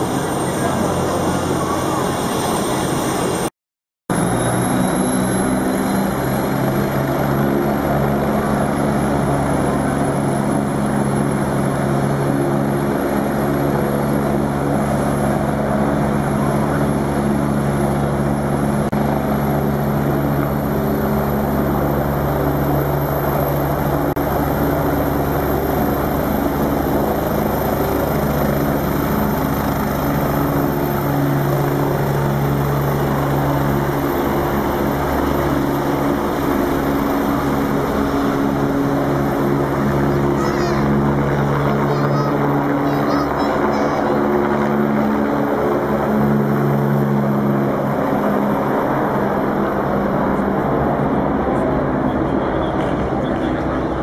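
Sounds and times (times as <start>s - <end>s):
helicopter rotor beat: 0.0s - 3.5s, 4.1s - 54.0s
high turbine whine: 0.0s - 3.5s, 4.1s - 54.0s.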